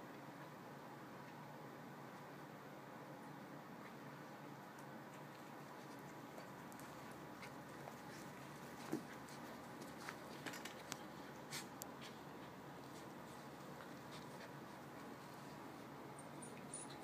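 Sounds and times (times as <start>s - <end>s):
steady low hiss: 0.0s - 17.0s
dogs scuffling on carpet: 5.3s - 15.9s.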